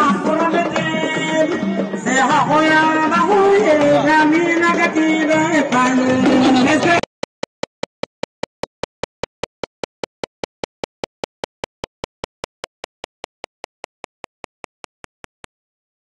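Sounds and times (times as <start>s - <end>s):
rapid sharp clicks: 6.9s - 15.5s.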